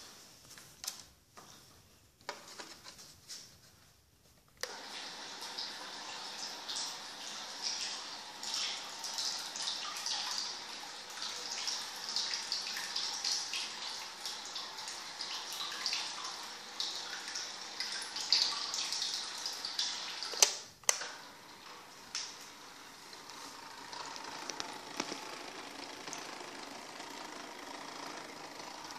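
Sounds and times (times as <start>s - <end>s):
propeller churning water: 21.7s - 28.9s.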